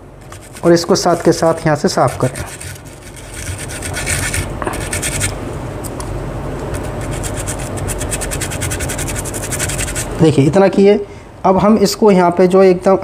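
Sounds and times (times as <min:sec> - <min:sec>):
steady low hum: 0:00.0 - 0:13.0
stiff brush scrubbing: 0:00.2 - 0:05.4, 0:06.7 - 0:10.2.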